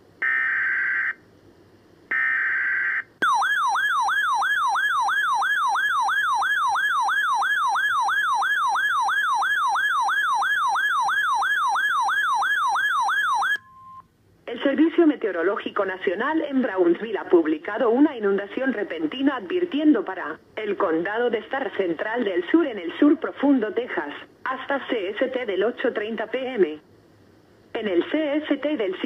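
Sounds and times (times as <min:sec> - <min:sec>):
warbling alert siren: 0:00.2 - 0:01.2, 0:02.1 - 0:14.0
steady alert tone: 0:03.2 - 0:07.1.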